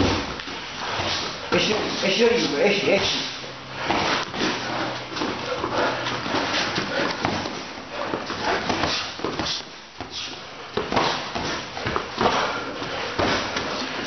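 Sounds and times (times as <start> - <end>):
boxing gloves thudding: 3.8 - 14.0.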